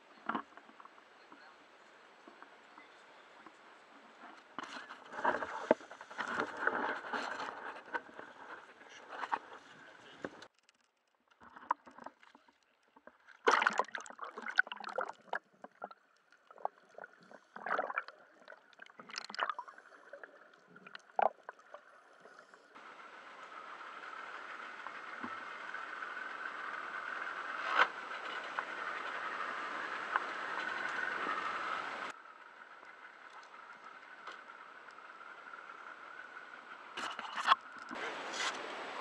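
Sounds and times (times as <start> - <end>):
sea water splashing and gurgling: 11.4 - 22.8.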